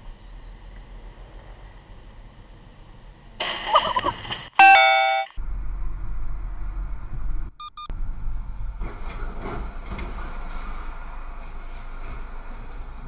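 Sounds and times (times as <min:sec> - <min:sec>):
in-car road noise: 0:00.0 - 0:13.0
short beeps: 0:04.6 - 0:05.4, 0:07.6 - 0:07.9.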